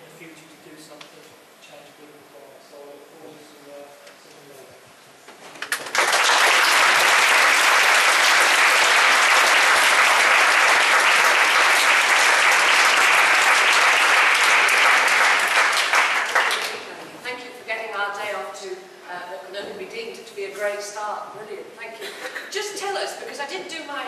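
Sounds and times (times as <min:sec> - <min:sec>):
audience applauding: 0:05.6 - 0:17.0.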